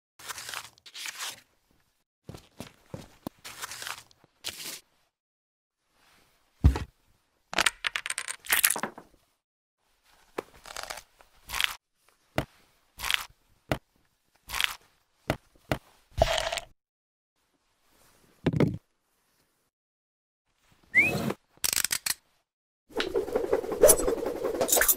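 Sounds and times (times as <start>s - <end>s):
dough crunching and tearing: 0.2s - 1.4s, 3.5s - 4.7s.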